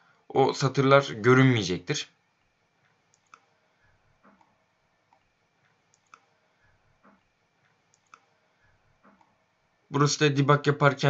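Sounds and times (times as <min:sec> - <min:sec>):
computer mouse clicks: 0:02.8 - 0:03.5, 0:04.2 - 0:08.3, 0:09.0 - 0:09.4.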